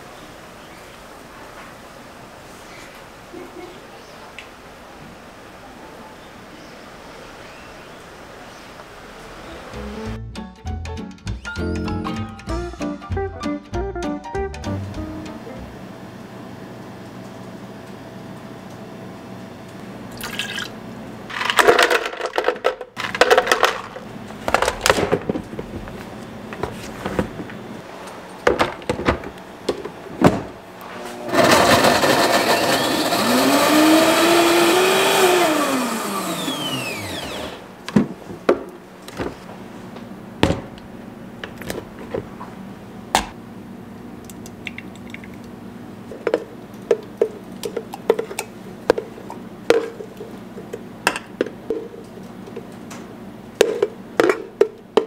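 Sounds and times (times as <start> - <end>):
blender motor running: 31.2 - 37.6.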